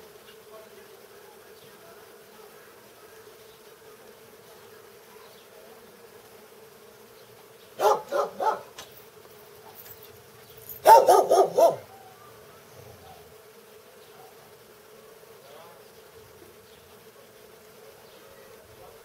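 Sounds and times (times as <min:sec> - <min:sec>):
bees buzzing: 0:00.0 - 0:19.0
dog barking: 0:07.8 - 0:08.8, 0:10.8 - 0:12.0, 0:14.1 - 0:14.5.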